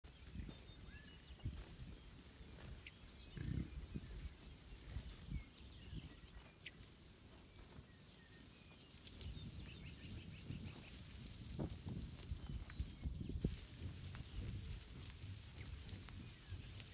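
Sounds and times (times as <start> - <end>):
wind rumble: 8.8 - 16.9.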